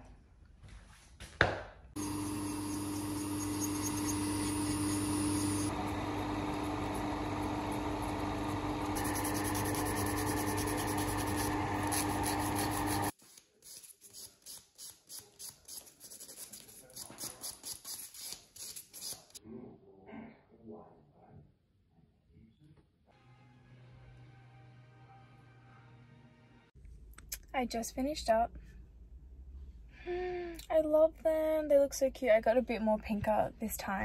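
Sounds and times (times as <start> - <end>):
dust extractor humming: 2.0 - 13.1
nail file rasping: 2.3 - 5.7, 9.0 - 19.4.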